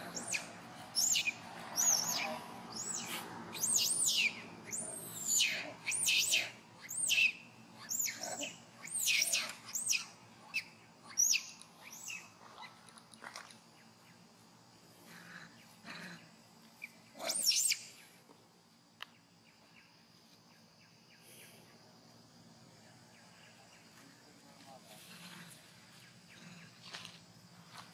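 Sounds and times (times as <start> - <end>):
monkey screaming: 0.0 - 10.1.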